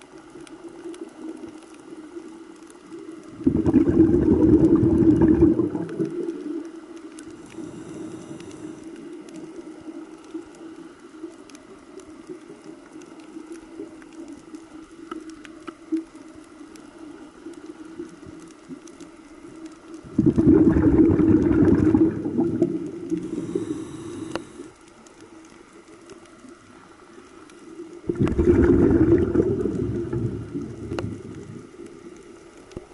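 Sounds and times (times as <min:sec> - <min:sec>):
faint underwater clicks: 0:00.0 - 0:32.9
underwater low hum: 0:00.0 - 0:32.9
scuba exhaust bubbles: 0:03.2 - 0:10.0, 0:20.0 - 0:24.8, 0:27.8 - 0:32.9.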